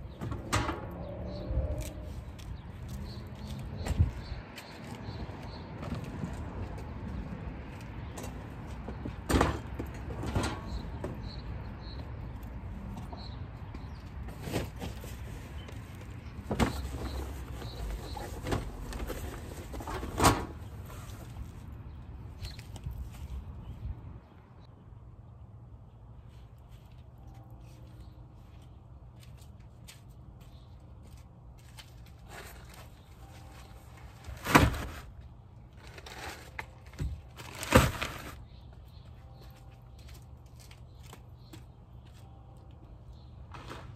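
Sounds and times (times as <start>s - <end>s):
nylon bag rustling and scraping: 35.8s - 38.4s.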